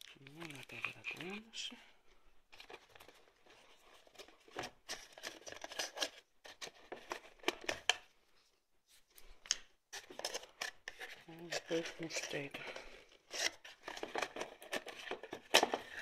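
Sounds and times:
card scraping cardboard box: 10.0 - 16.0.

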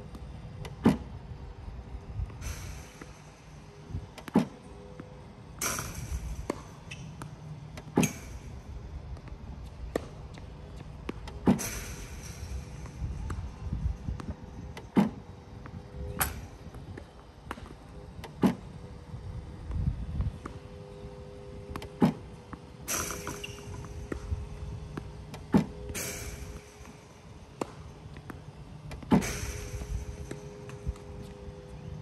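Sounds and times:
tennis balls struck and bouncing: 2.6 - 18.8, 20.3 - 32.0.

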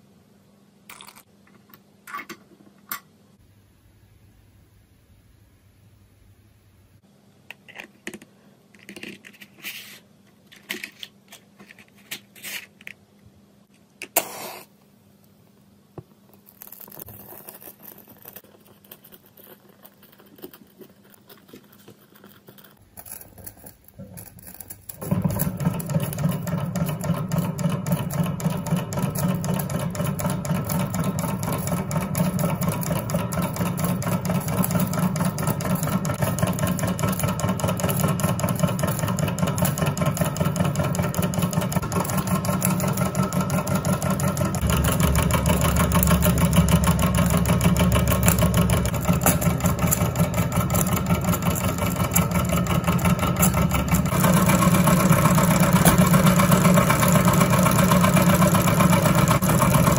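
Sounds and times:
engine rapid mechanical clatter: 24.9 - 59.9.

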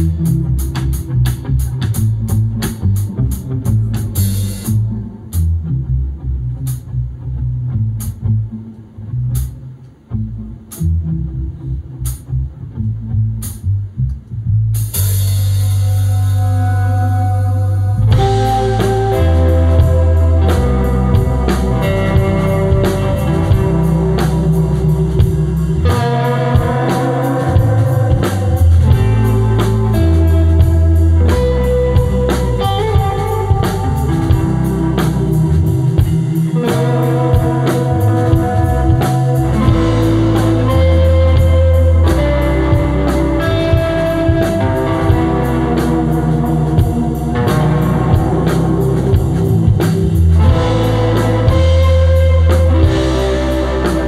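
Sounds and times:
drum kit beat: 0.0 - 5.7, 14.8 - 17.2, 17.9 - 54.0
bass notes: 0.0 - 54.0
guitar melody: 0.0 - 54.0.

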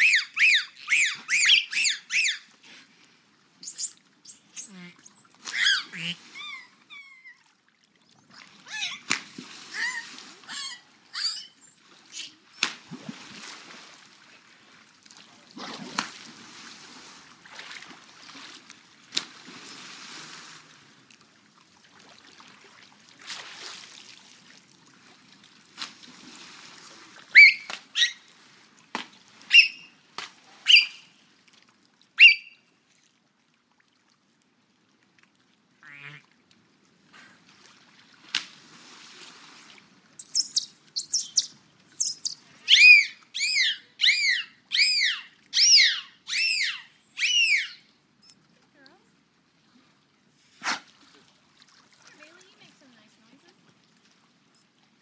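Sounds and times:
dolphin chirps: 0.0 - 2.5, 3.6 - 7.5, 8.7 - 9.1, 9.8 - 12.7, 19.6 - 19.8, 27.3 - 28.2, 29.5 - 30.0, 30.6 - 31.1, 32.2 - 32.7, 40.2 - 48.4
dolphin whistles rising and falling: 0.0 - 2.5, 3.6 - 7.4, 8.7 - 9.1, 9.8 - 12.7, 19.6 - 19.8, 27.3 - 28.2, 29.5 - 30.0, 30.6 - 31.1, 32.2 - 32.6, 40.2 - 48.4
water rushing: 3.6 - 7.3, 19.4 - 20.7.

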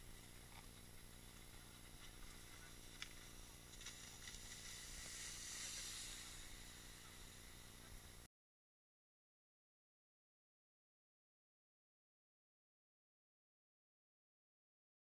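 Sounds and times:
water spray hissing: 2.4 - 8.2.

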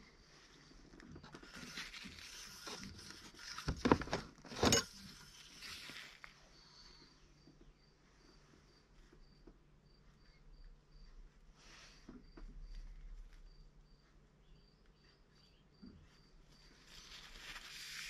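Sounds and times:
faint high chirp: 14.3 - 17.7.

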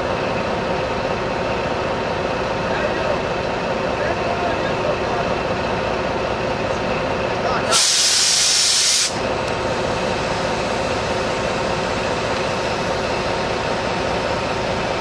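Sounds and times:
diesel locomotive engine humming: 0.0 - 15.0
air brakes hissing: 7.7 - 9.2.

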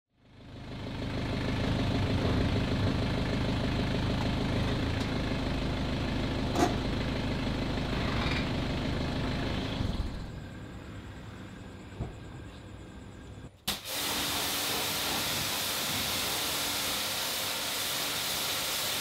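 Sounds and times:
car engine idling: 0.1 - 13.5.

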